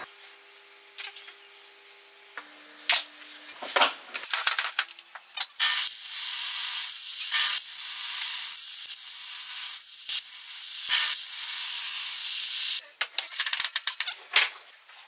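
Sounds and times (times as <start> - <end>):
table saw cutting wood: 5.6 - 12.6.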